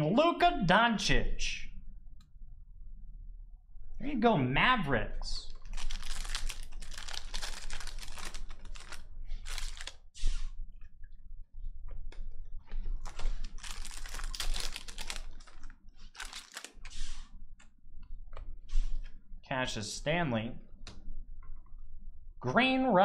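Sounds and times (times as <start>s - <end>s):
foil wrapper crinkling and tearing: 5.5s - 10.0s, 13.0s - 16.8s.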